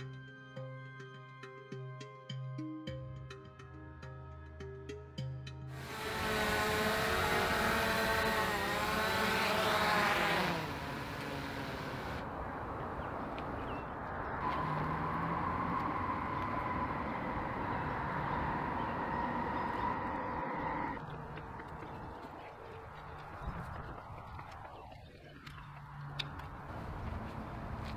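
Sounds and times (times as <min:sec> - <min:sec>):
drone propellers buzzing: 0:05.7 - 0:12.3, 0:14.4 - 0:22.0
outdoor background noise: 0:05.7 - 0:27.9.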